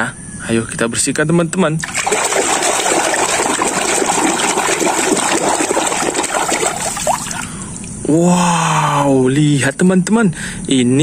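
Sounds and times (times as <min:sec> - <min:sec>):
water sloshing and splashing: 0:01.8 - 0:08.0.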